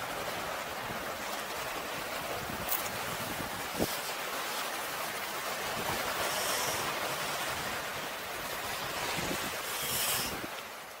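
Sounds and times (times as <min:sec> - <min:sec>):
small waves washing over rocks: 0:00.0 - 0:11.0.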